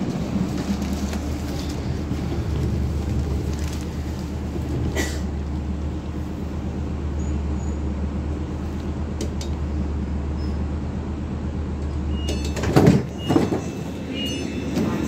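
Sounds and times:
low hum inside train: 0.0s - 15.0s
sliding doors opening: 11.8s - 15.0s.

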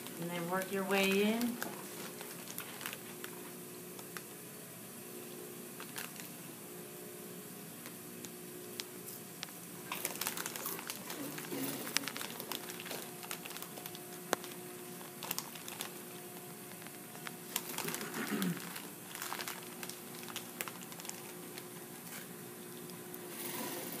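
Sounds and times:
faint steady hum: 0.0s - 24.0s
fabric rustling and crinkling: 0.7s - 3.3s, 9.9s - 22.3s.

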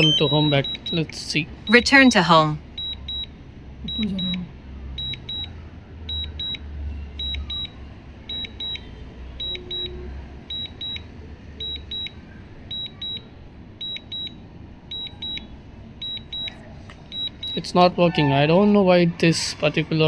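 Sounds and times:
remote controller double beep: 0.0s - 2.2s, 3.9s - 4.4s, 7.2s - 11.0s, 11.6s - 14.3s, 14.9s - 17.6s.

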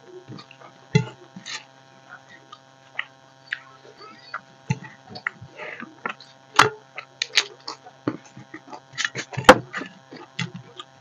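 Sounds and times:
faint steady hum: 0.0s - 11.0s
chewing: 7.0s - 11.0s.

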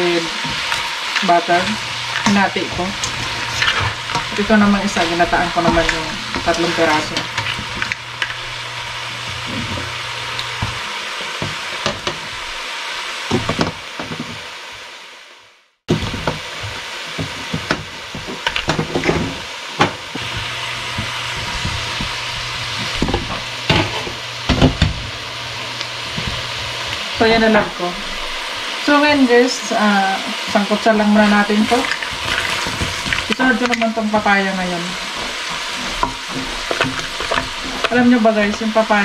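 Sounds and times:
food sizzling in a wok: 0.0s - 39.0s
spatula scraping a pan: 0.4s - 8.6s, 20.2s - 24.2s, 34.9s - 38.2s.

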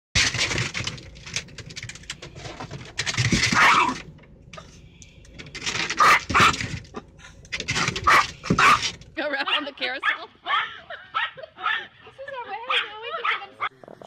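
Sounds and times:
small dog barking: 6.0s - 6.6s, 8.1s - 8.8s, 9.4s - 11.9s, 12.7s - 13.7s.

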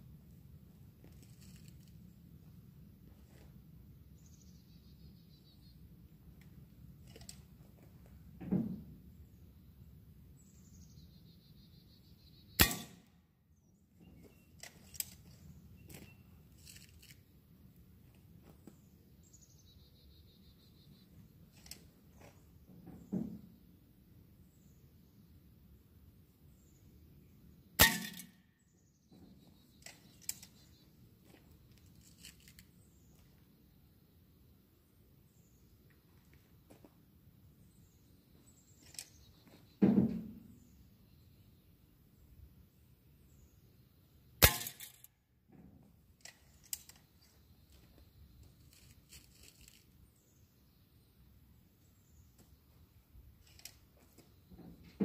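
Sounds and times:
air rifle shot crack: 12.6s - 13.0s
pellet hitting metal can: 12.6s - 13.0s, 27.8s - 28.3s, 44.4s - 45.1s
birds chirping: 37.6s - 42.2s.

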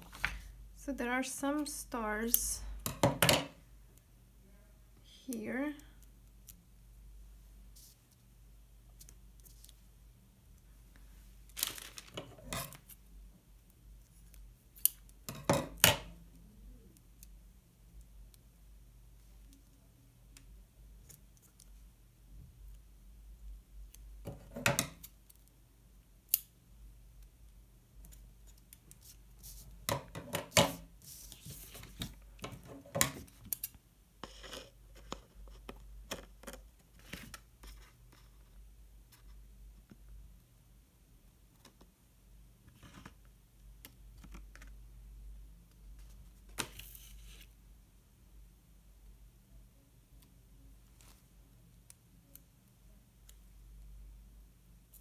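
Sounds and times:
paper rustling: 11.5s - 12.5s, 30.7s - 32.2s.

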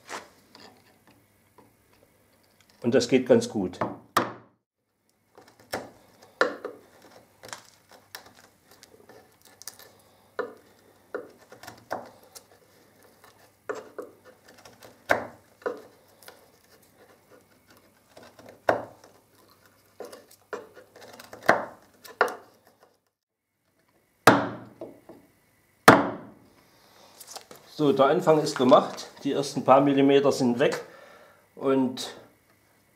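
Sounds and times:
chisel scraping wood: 5.3s - 23.1s
louder knocks: 24.3s - 24.7s, 25.9s - 26.4s.

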